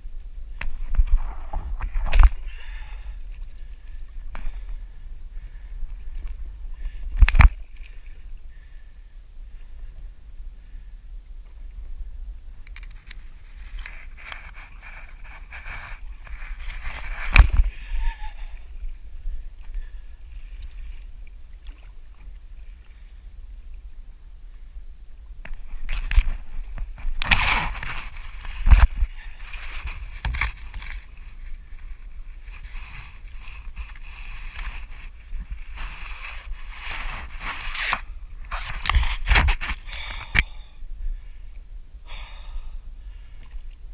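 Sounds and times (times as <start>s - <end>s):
wind rumbling on microphone: 0.0s - 43.9s
paddle knocks and scrapes on kayak: 13.5s - 18.0s, 25.5s - 40.3s
water splashing: 19.8s - 23.1s.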